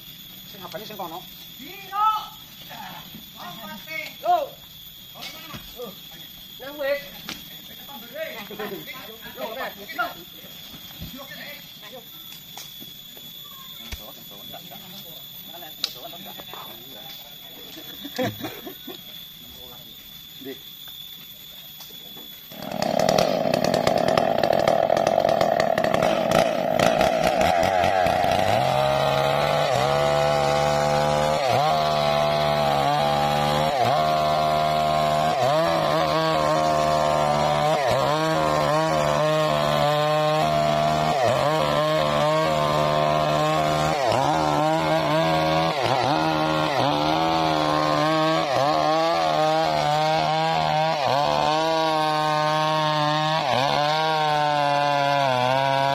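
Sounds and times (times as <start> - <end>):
chainsaw cutting log: 22.5 - 55.9.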